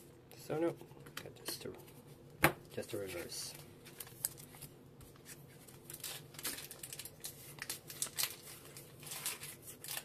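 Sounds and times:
foil wrapper crinkling: 3.2s - 4.7s, 5.3s - 10.0s.

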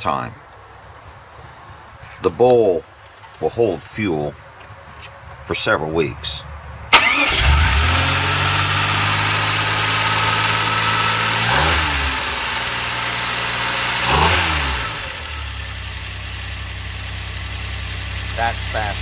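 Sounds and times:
car engine idling and revving: 6.9s - 19.0s.

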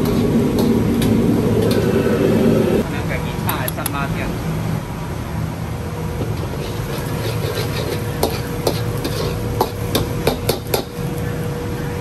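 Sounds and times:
metal ladle scraping a wok: 0.0s - 2.1s, 6.4s - 9.9s
steady low rumble: 0.0s - 6.1s.

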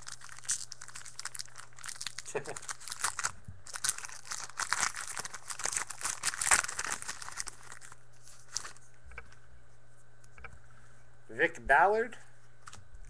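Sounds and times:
foil pack tearing and crinkling: 0.0s - 8.8s.

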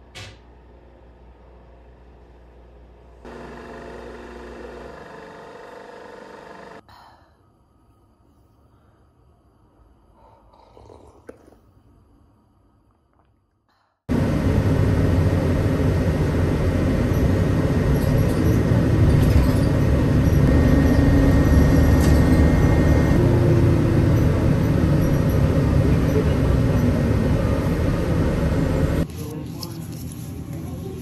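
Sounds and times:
road noise: 14.1s - 29.4s
bus engine rumble: 14.1s - 31.0s.

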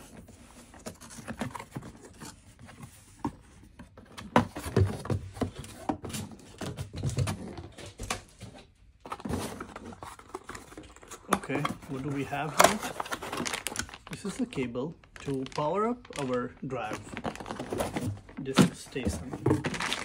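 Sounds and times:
cardboard box being handled: 0.0s - 7.6s, 16.8s - 20.0s.

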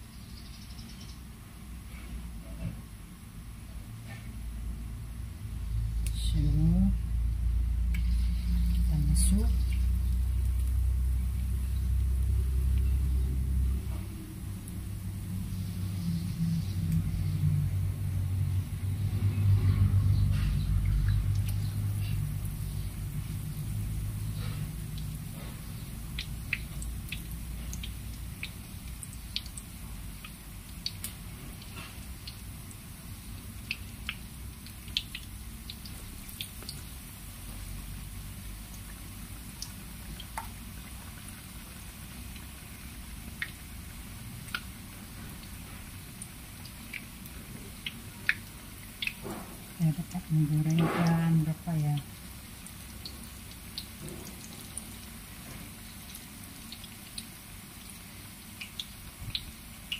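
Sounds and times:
food deep-frying in oil: 0.0s - 59.9s
steady low rumble: 4.6s - 30.6s.

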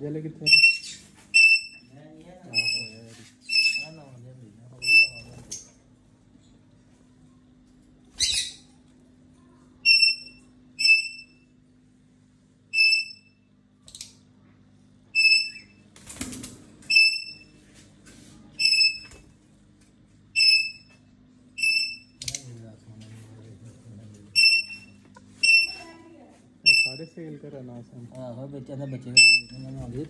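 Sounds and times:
parrot chirps: 0.5s - 1.9s, 2.5s - 4.0s, 4.8s - 5.3s, 8.2s - 8.7s, 9.8s - 11.4s, 15.2s - 15.8s, 26.6s - 27.0s.

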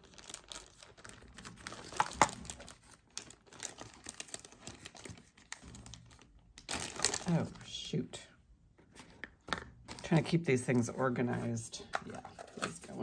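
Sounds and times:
plastic bags crinkling: 0.0s - 7.7s.

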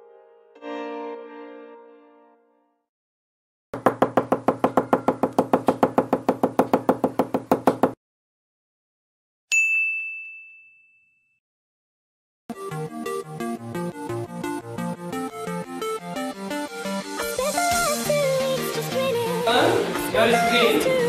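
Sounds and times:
bell-like ding: 9.5s - 11.4s
electronic music: 12.5s - 21.0s.

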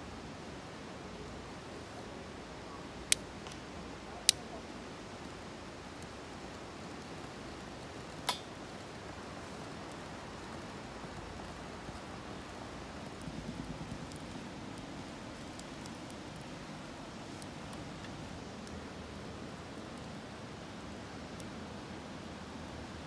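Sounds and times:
faint outdoor background: 0.0s - 23.0s
lighter igniter clicks: 8.2s - 8.5s.

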